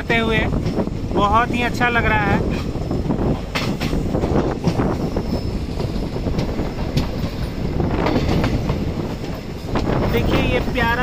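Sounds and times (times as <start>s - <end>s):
train coach rumbling: 0.0s - 11.0s
wheels clicking over rails: 2.5s - 11.0s.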